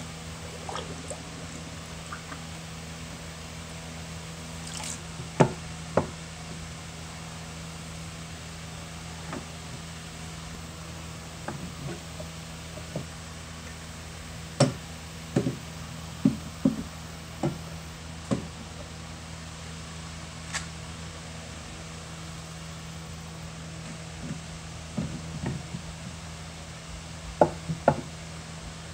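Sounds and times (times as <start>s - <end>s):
steady low hum: 0.0s - 18.1s.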